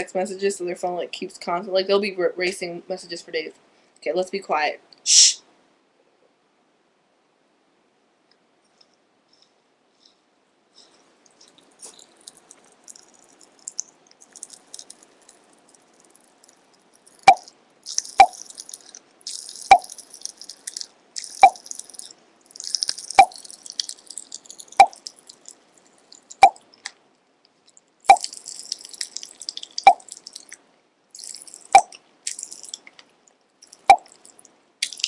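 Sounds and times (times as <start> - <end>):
candy crackling and fizzing: 10.8 - 26.8, 27.6 - 35.0.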